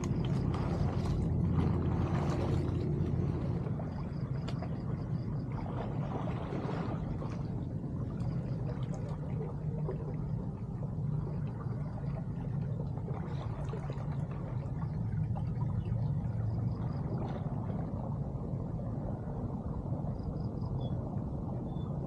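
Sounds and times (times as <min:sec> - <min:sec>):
water rushing through culvert: 0:00.0 - 0:07.7
faint splashes: 0:00.0 - 0:21.4.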